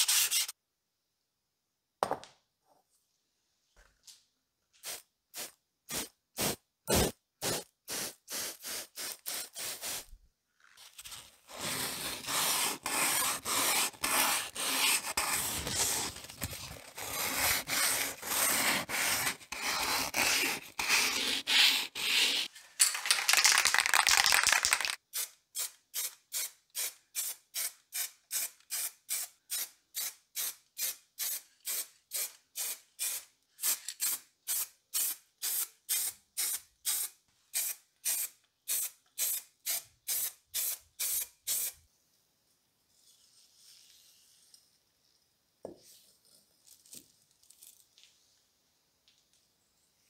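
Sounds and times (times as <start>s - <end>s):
spray paint can bursts: 4.8s - 10.1s, 22.9s - 41.8s.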